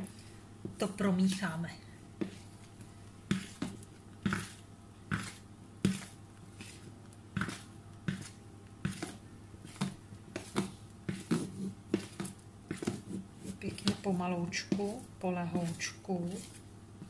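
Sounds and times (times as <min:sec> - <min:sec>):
utensil scraping a bowl: 0:10.4 - 0:16.6.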